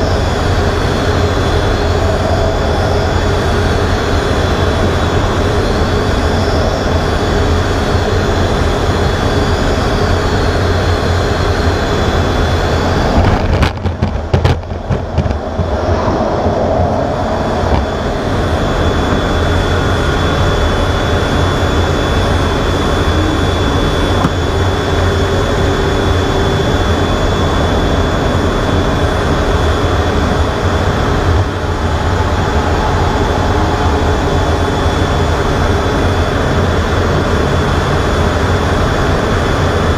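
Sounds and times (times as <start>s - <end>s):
jet engines with high whine: 0.0s - 39.9s
sharp knocks and clatter: 13.2s - 15.7s.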